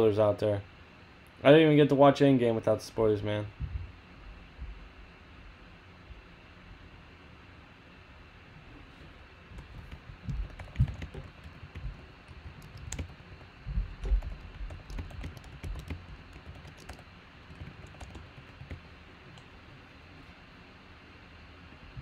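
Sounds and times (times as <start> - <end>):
keyboard typing clicks: 9.5 - 19.5.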